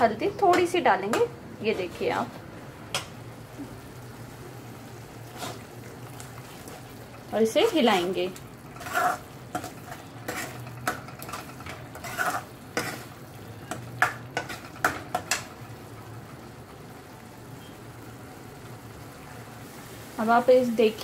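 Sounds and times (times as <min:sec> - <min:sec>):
sauce sizzling: 0:02.4 - 0:21.0
ladle scraping metal pot: 0:08.7 - 0:13.2.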